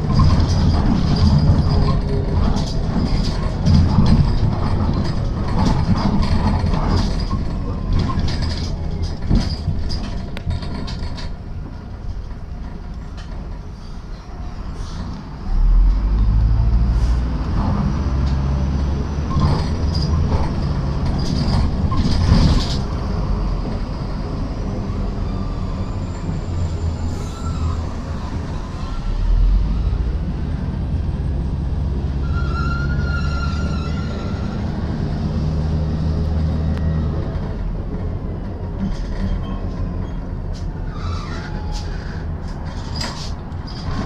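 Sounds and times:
bus diesel engine drone: 0:00.0 - 0:44.0
road noise: 0:00.0 - 0:44.0
short high squeal: 0:25.2 - 0:27.9, 0:32.2 - 0:34.7, 0:40.9 - 0:42.2.

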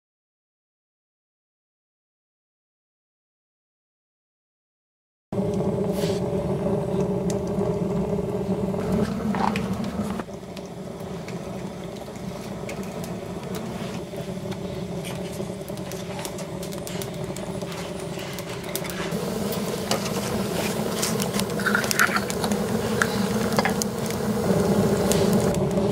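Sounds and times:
stove fire droning: 0:05.3 - 0:25.9
fire crackling and popping: 0:05.4 - 0:25.9.

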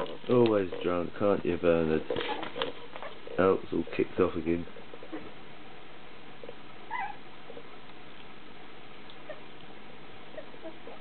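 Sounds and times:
puppies scuffling: 0:00.0 - 0:11.0
puppy squeaks: 0:06.9 - 0:07.2.

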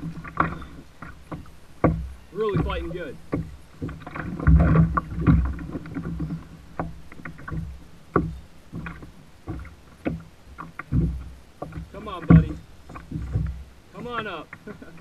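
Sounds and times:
water lapping at plastic hull: 0:00.0 - 0:15.0.

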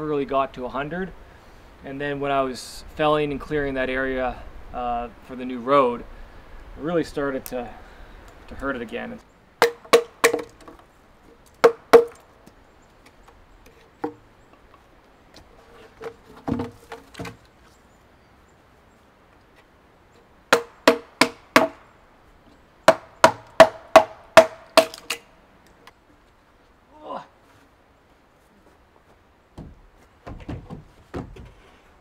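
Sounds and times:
tool knocking into wooden log: 0:09.6 - 0:10.6, 0:11.6 - 0:12.2.

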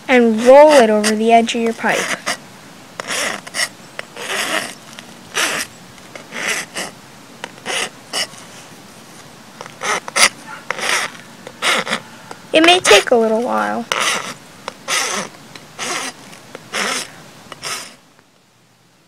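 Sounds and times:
file rasping on plastic pipe: 0:00.2 - 0:02.4, 0:03.0 - 0:08.4, 0:09.6 - 0:12.0, 0:12.6 - 0:13.2, 0:13.8 - 0:18.0.

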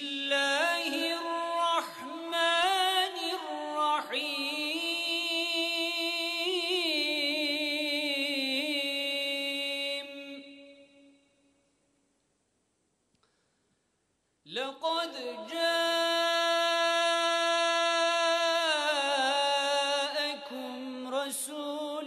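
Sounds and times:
man reciting melodically: 0:00.0 - 0:11.1, 0:14.5 - 0:22.0.

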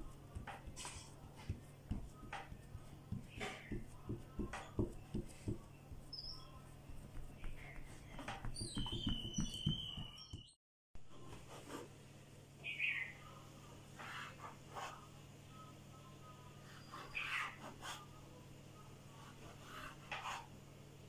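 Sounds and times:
hands patting dough on wood: 0:00.0 - 0:10.5.

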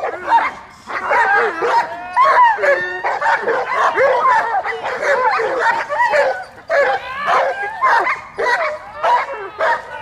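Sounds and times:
young dog barking and yipping: 0:00.0 - 0:10.0.

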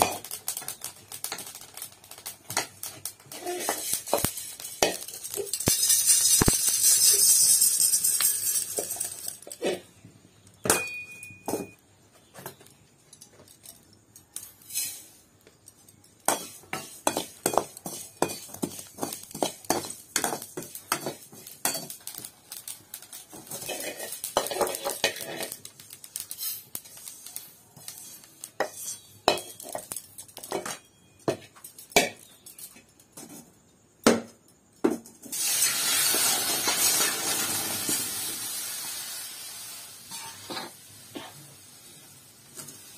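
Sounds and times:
seeds pouring into steel bowl: 0:00.0 - 0:09.8, 0:14.4 - 0:15.2, 0:16.3 - 0:30.5, 0:35.3 - 0:42.9
metal spoon scraping steel pan: 0:03.2 - 0:09.9, 0:14.6 - 0:15.2, 0:23.4 - 0:30.8, 0:40.1 - 0:41.4.

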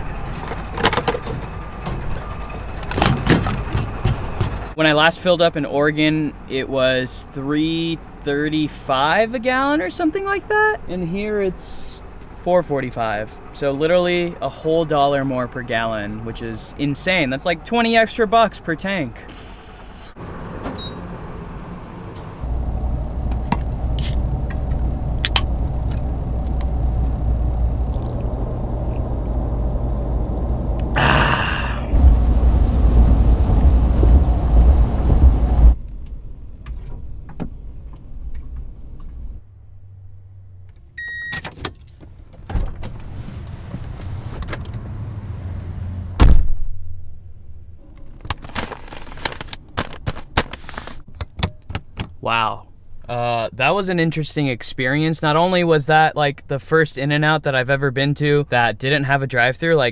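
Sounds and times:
truck road and engine rumble: 0:00.0 - 0:59.9
short electronic beep: 0:41.0 - 0:41.4
loud thud: 0:46.2 - 0:46.8
paper bag rustling: 0:48.0 - 0:51.1.

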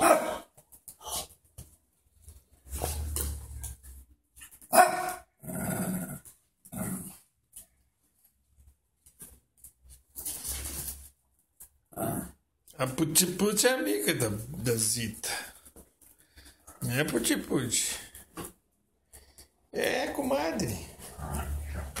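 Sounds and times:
small dogs barking: 0:00.0 - 0:00.5, 0:04.7 - 0:05.2.

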